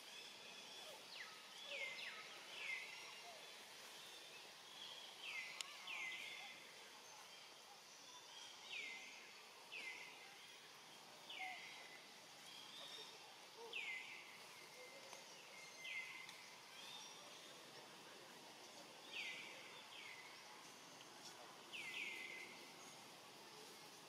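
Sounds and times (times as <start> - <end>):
faint outdoor background: 0.0 - 24.0.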